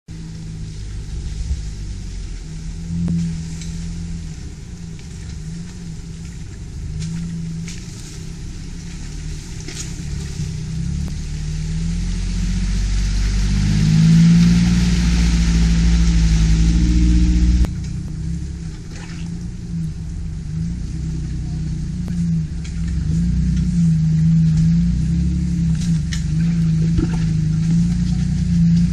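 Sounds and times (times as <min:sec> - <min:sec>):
car engine pulling through mud: 0:00.1 - 0:28.9
water splashing and hissing: 0:05.9 - 0:17.7.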